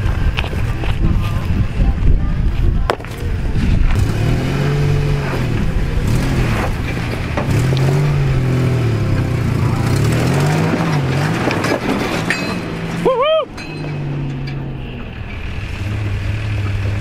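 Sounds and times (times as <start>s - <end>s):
rocks clicking under tyres: 0.1s - 1.6s
pickup engine revving: 3.1s - 17.0s.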